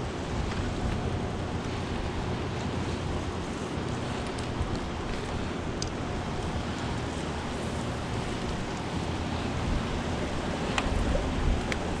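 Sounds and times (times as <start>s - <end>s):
turbulent river water rushing: 0.0s - 12.0s
wind buffeting microphone: 0.0s - 12.0s
faint clicks: 3.8s - 7.2s.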